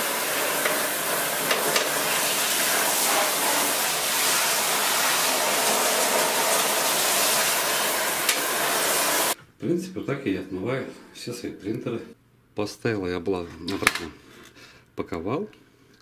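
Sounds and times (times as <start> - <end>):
shower water spraying on plastic: 0.0 - 9.4.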